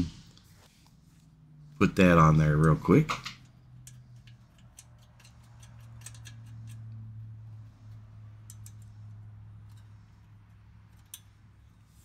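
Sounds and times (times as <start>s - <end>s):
metallic clicks and taps: 2.6s - 7.1s, 8.4s - 9.9s.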